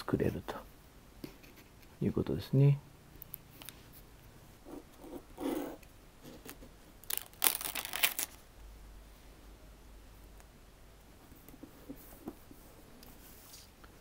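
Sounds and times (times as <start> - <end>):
plastic sheet crinkling: 7.0 - 8.4.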